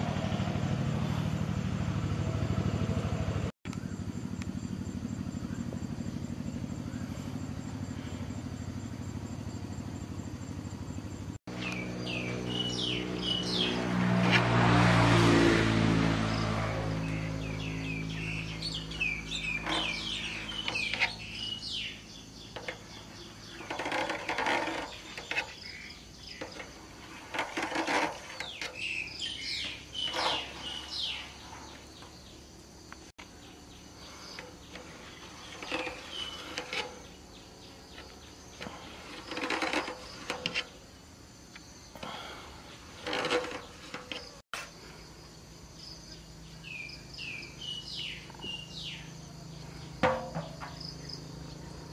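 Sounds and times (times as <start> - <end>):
birds chirping: 0.1 - 14.3, 16.2 - 44.4, 45.8 - 51.9
knife scraping on steel tray: 23.5 - 25.8, 26.4 - 28.9, 29.6 - 31.1, 34.8 - 37.2, 38.6 - 40.8, 42.9 - 44.4.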